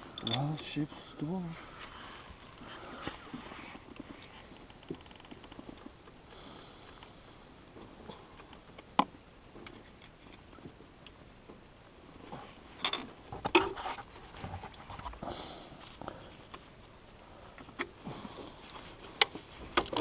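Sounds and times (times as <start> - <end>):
metal clinks and knocks: 0.0 - 0.8, 12.8 - 13.8
faint rustling: 0.0 - 6.0
tool clicks and clinks on engine: 0.1 - 0.8.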